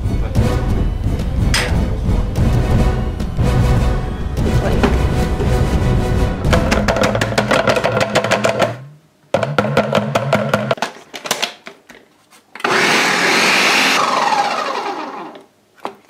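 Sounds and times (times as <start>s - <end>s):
music with drum beat: 0.0s - 8.8s
blender running: 12.6s - 15.5s.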